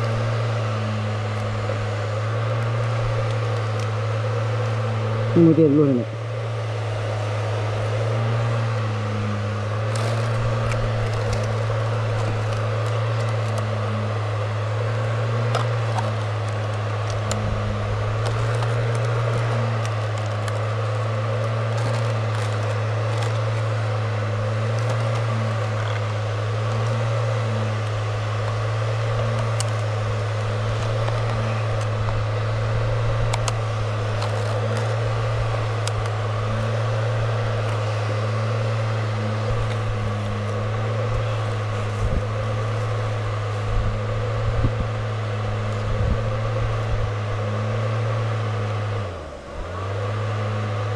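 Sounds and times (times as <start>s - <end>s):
small fan motor humming: 0.0s - 50.9s
handling crackles and ticks: 2.6s - 4.0s, 9.8s - 14.0s, 15.4s - 27.2s, 27.8s - 38.1s, 39.4s - 43.8s.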